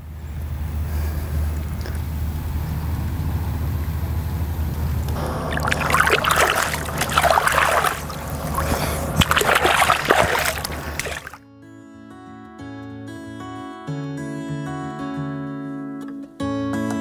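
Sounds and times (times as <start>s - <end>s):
water splashing and sloshing: 5.1s - 11.4s.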